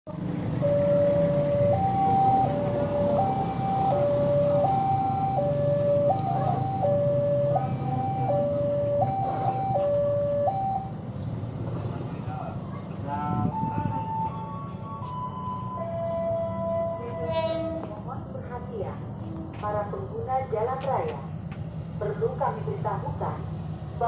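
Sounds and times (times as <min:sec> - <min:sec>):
passing traffic rumble: 0:00.1 - 0:24.0
two-tone crossing alarm: 0:00.2 - 0:11.0, 0:13.4 - 0:18.0.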